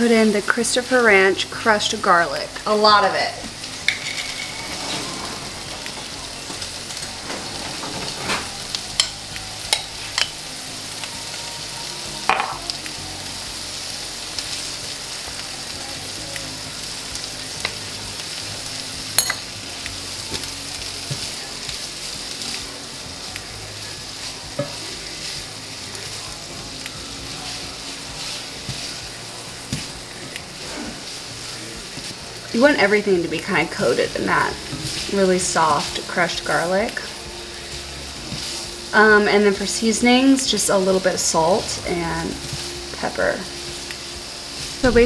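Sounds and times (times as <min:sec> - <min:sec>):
vegetables sizzling in skillet: 0:00.0 - 0:45.0
utensils clicking against pan: 0:03.4 - 0:10.6.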